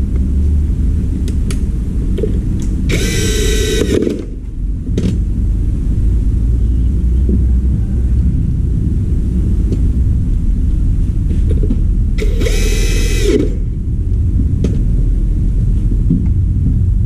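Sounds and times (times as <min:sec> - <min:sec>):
low rumble: 0:00.0 - 0:17.0
drill motor whine: 0:02.9 - 0:04.3, 0:12.2 - 0:13.7.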